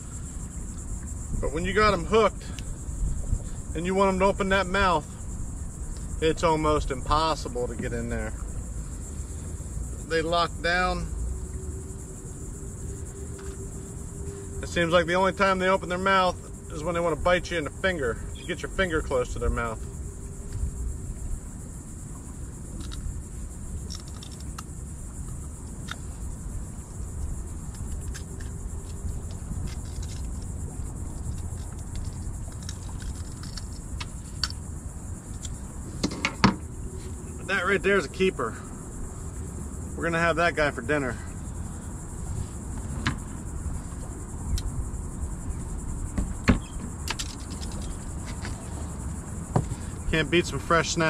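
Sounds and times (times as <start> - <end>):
high-pitched insect drone: 0.0 - 51.0
wind rumbling on microphone: 0.0 - 51.0
sharp knocks on boat: 46.1 - 47.2.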